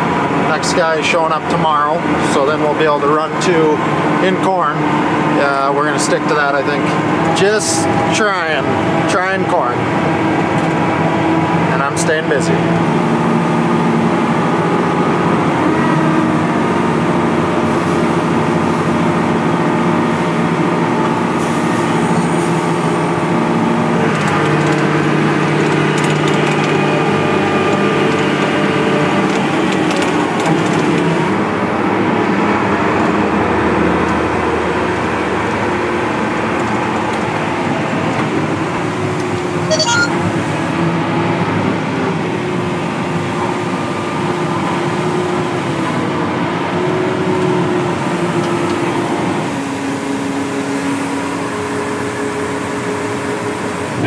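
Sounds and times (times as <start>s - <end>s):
heavy machinery engine drone: 0.0s - 54.0s.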